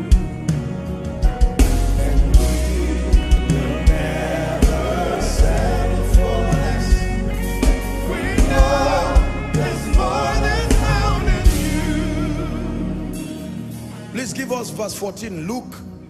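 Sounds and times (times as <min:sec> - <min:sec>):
heavy drum beats: 0:00.0 - 0:12.5
gospel singers with a band: 0:00.0 - 0:14.1.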